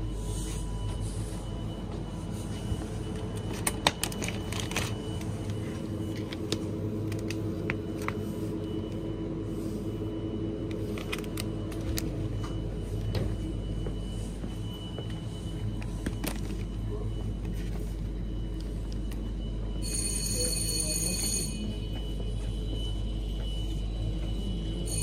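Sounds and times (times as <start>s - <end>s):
refrigerated shelving hum: 0.0s - 25.0s
plastic pack handled: 3.5s - 5.3s, 10.7s - 12.1s.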